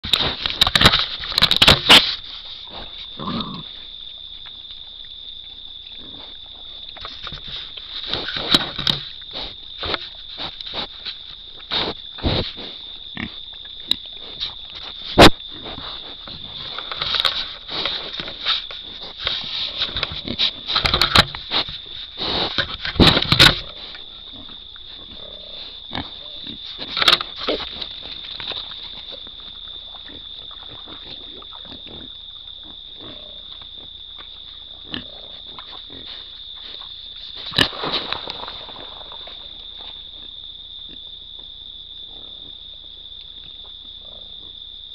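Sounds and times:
hog grunts: 3.2s - 3.8s.

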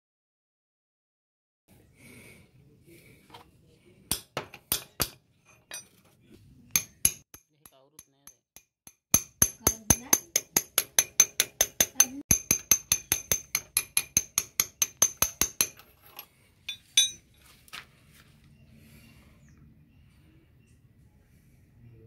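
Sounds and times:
ringing metal taps: 6.7s - 17.3s.

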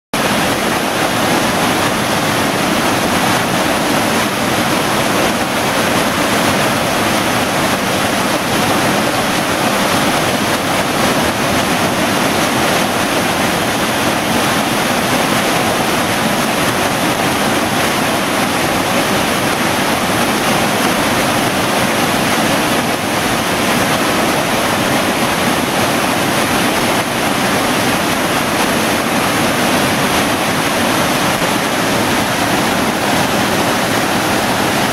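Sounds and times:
creek rushing over boulders: 0.1s - 34.9s.

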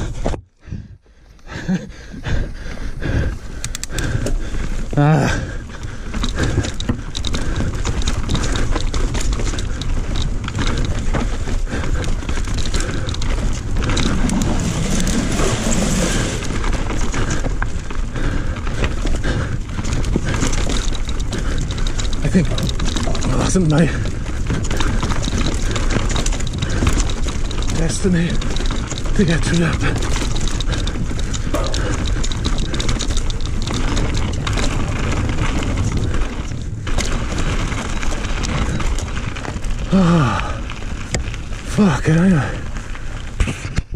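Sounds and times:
bike rattling and knocking: 0.0s - 43.9s
bike tyres on loose dirt: 0.0s - 43.9s
wind rumble on microphone: 2.2s - 41.7s.

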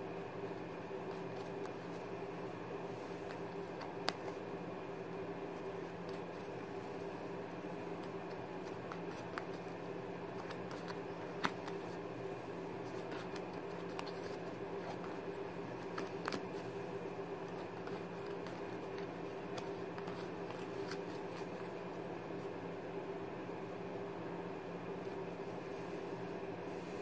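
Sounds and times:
playing cards clicking: 1.0s - 2.0s, 3.2s - 4.4s, 7.9s - 12.0s, 12.9s - 16.6s, 17.4s - 21.8s.

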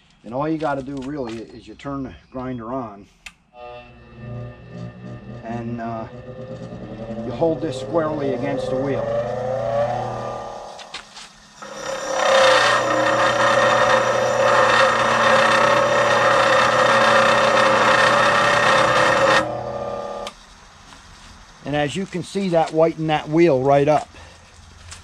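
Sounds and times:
grinder motor hum: 3.6s - 20.4s
grinder wheel grating: 3.6s - 20.4s.

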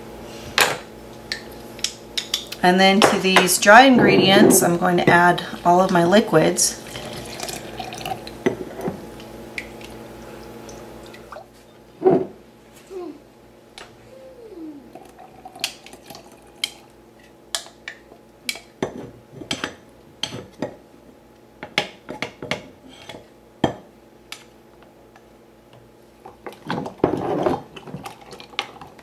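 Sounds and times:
liquid pouring into glass jar: 6.8s - 8.3s, 15.0s - 16.9s.

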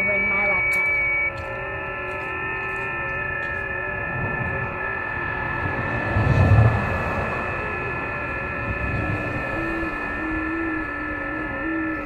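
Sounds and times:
radio band hiss: 0.0s - 6.0s
digital radio tones: 0.0s - 12.0s
low rumble: 0.0s - 12.0s.

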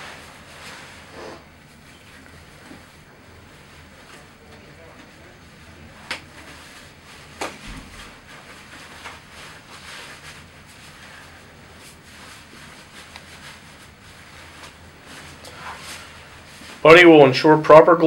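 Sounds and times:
rustling of gown and gloves: 6.3s - 16.9s.

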